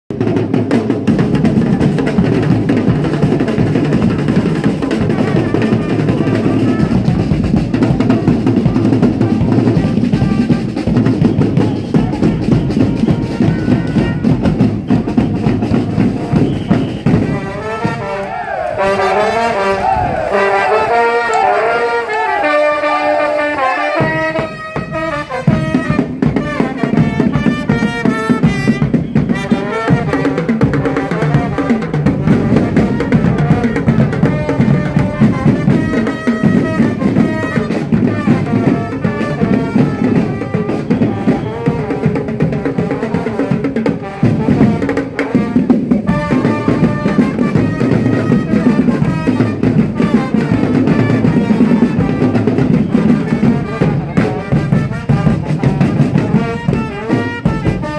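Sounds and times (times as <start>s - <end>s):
bass and snare drums beat: 0.1s - 57.9s
brass band playing: 0.1s - 57.9s.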